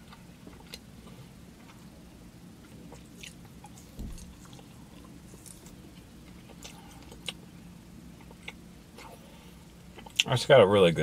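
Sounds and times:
soft thump: 0:03.9 - 0:04.3.

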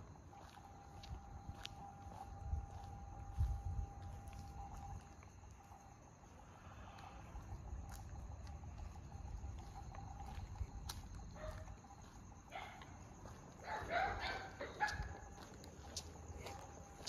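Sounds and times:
dogs barking: 0:11.4 - 0:11.7, 0:12.5 - 0:13.0, 0:13.6 - 0:15.2.

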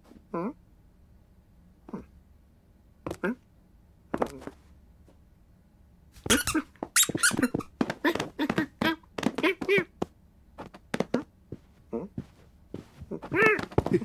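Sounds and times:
cartoon cat squeaks and chirps: 0:06.3 - 0:07.6.

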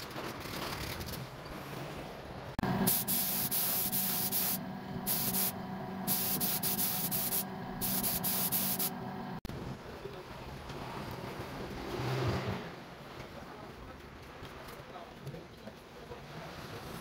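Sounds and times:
paint spray gun hissing: 0:02.6 - 0:09.0
steady machine hum: 0:02.6 - 0:09.5.

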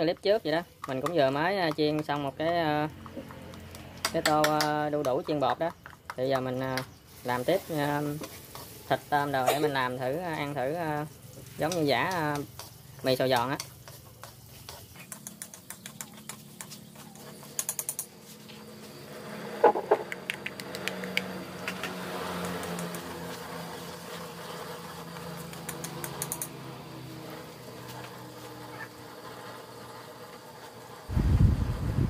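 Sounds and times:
oil sizzling in a wok: 0:00.0 - 0:19.5, 0:21.4 - 0:32.0
quick clicks: 0:19.7 - 0:23.1, 0:25.4 - 0:26.5
loud rumbling rush: 0:31.1 - 0:32.0.

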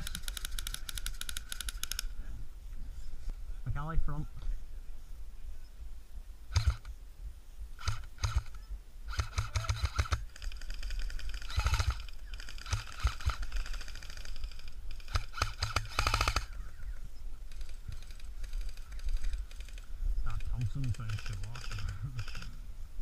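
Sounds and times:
airsoft guns firing: 0:07.8 - 0:08.5, 0:09.1 - 0:16.6.

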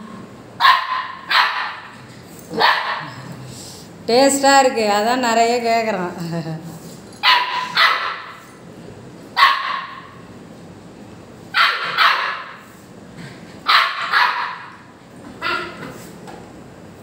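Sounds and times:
puppy barking high-pitched: 0:00.6 - 0:01.9, 0:02.5 - 0:03.1, 0:07.2 - 0:08.4, 0:09.4 - 0:10.2, 0:11.5 - 0:12.6, 0:13.6 - 0:15.8.

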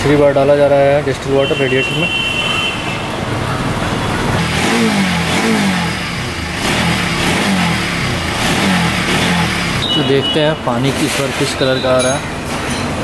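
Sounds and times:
steady background noise: 0:00.0 - 0:13.0
engine revving: 0:03.7 - 0:11.8.

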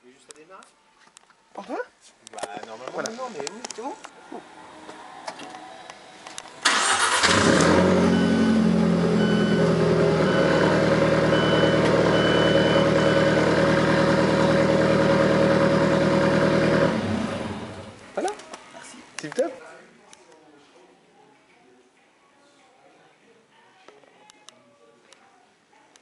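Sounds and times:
car engine starting and idling: 0:06.6 - 0:18.0
faint high beep: 0:08.0 - 0:13.4.

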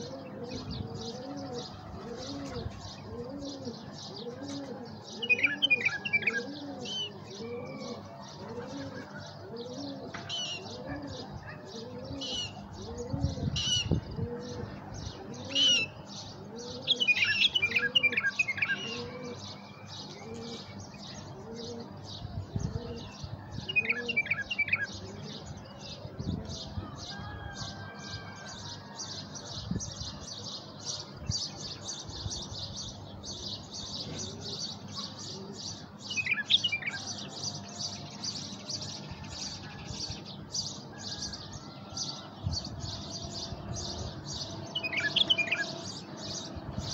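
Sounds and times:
dove cooing: 0:00.0 - 0:26.7, 0:33.8 - 0:37.5, 0:42.8 - 0:46.9
bird warbling song phrases: 0:00.0 - 0:46.9
birds chirping rapidly: 0:00.0 - 0:46.9.

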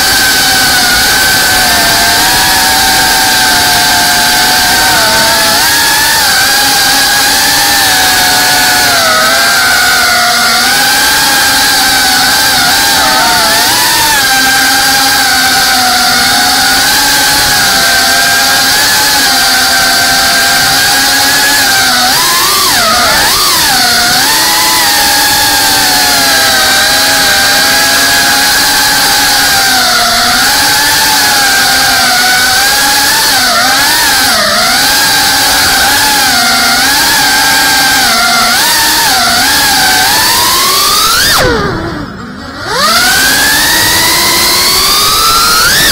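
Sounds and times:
drone motors whining: 0:00.0 - 0:45.9.

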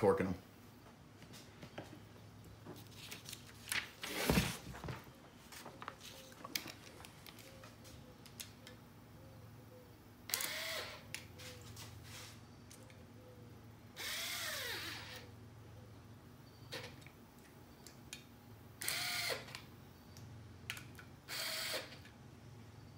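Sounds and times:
cordless impact wrench spinning: 0:10.3 - 0:11.0.

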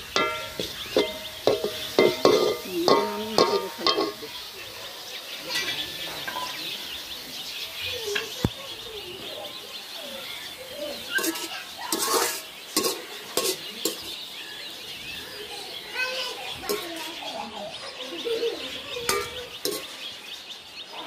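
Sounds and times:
greens sizzling faintly: 0:00.0 - 0:21.0
metal spoon scraping a metal pan: 0:00.1 - 0:04.3, 0:11.2 - 0:14.2, 0:16.6 - 0:17.2, 0:19.1 - 0:20.0.

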